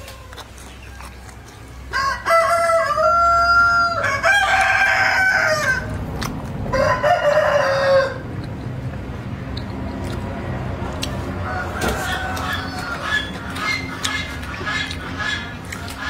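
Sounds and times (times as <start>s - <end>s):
rooster crowing: 1.9s - 6.0s, 6.7s - 8.2s, 11.4s - 13.4s.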